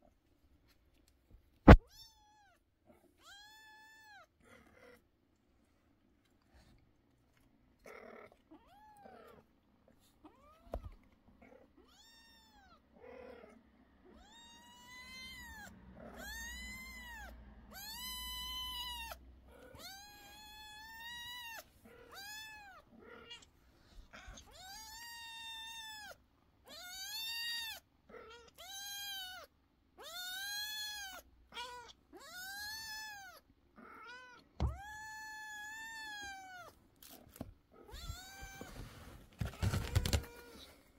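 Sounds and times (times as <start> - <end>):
kitten meowing: 14.1 - 23.4, 34.0 - 36.7.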